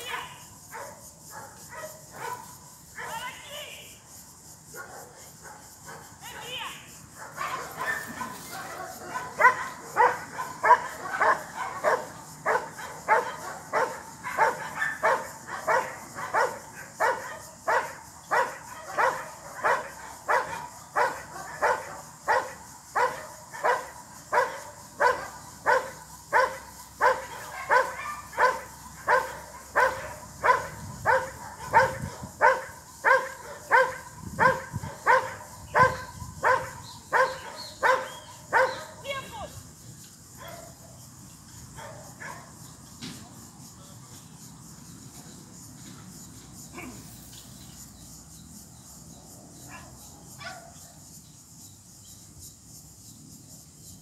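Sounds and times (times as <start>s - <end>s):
dog barking rhythmically: 8.9s - 39.5s.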